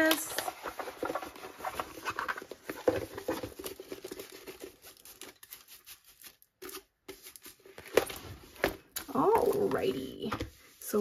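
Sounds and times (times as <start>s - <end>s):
canvas and plastic film crinkling: 0.0s - 11.0s.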